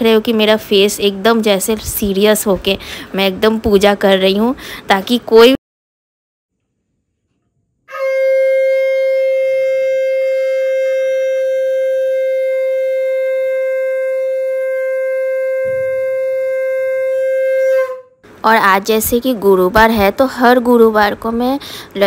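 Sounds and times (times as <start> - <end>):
conch shell blown: 7.9 - 18.2.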